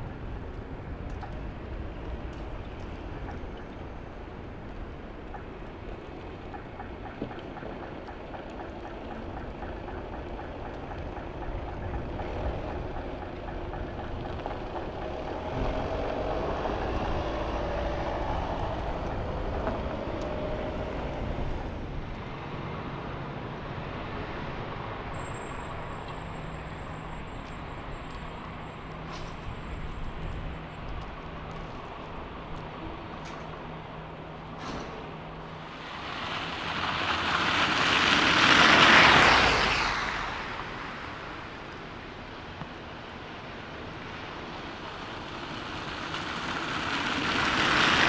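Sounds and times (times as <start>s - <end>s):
rumble of traffic: 0.0s - 48.0s
car driving past close by: 35.7s - 41.7s.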